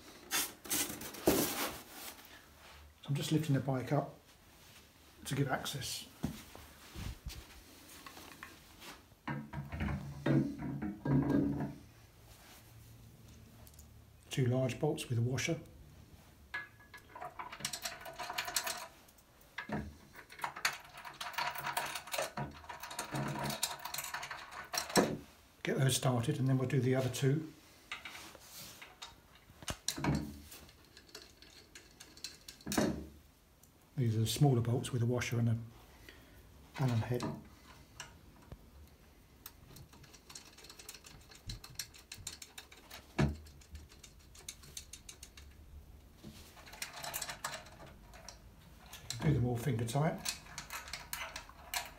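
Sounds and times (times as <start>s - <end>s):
metallic clicking and rattling: 16.5s - 25.2s, 27.9s - 33.0s, 36.8s - 51.9s.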